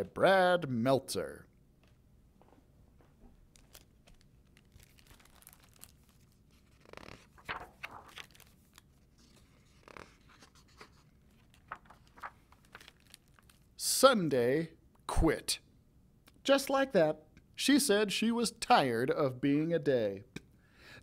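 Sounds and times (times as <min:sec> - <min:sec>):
book pages rustling: 0:02.5 - 0:13.7.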